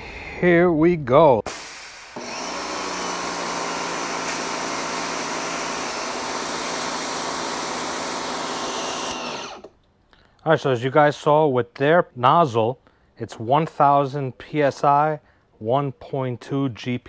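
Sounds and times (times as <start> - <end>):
electric pressure washer running: 2.0 - 9.7.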